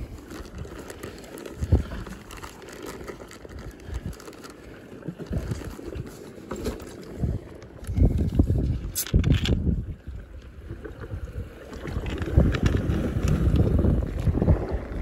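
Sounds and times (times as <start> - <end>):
plastic bag crinkling: 0.1 - 5.9.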